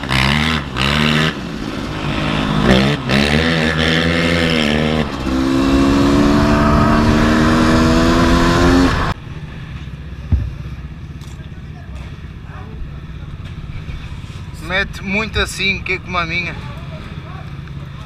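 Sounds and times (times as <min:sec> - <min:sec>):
two-stroke engine revving: 0:00.0 - 0:09.2.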